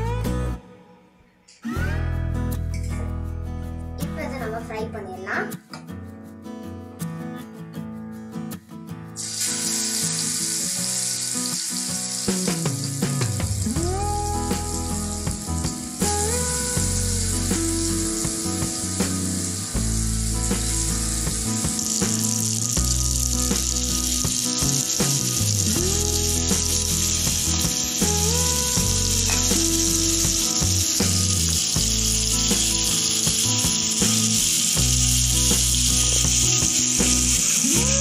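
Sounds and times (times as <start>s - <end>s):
background music: 0.0s - 38.0s
oil sizzling in a pan: 9.2s - 38.0s.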